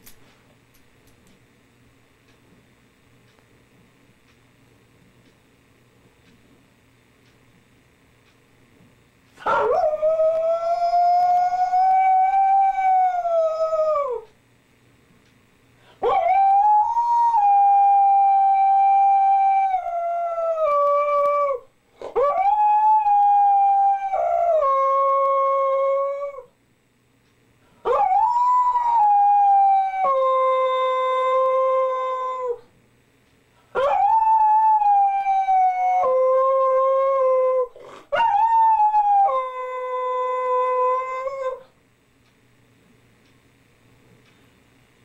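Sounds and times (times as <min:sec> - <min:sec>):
husky howling: 0:09.4 - 0:14.3, 0:16.0 - 0:26.5, 0:27.8 - 0:32.6, 0:33.8 - 0:41.7.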